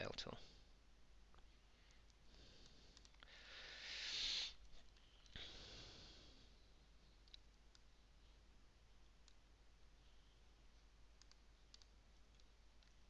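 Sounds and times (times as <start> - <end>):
person breathing close: 1.7 - 6.6.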